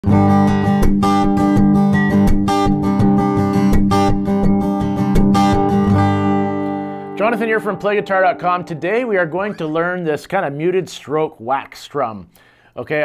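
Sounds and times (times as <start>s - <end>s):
acoustic guitar strumming: 0.0s - 10.4s.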